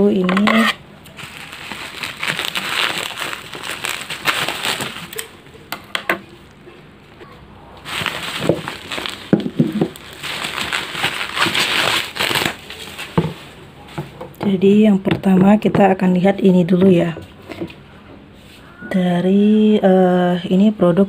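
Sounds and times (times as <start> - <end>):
packaging crinkling: 0.3 - 5.6, 7.8 - 14.0.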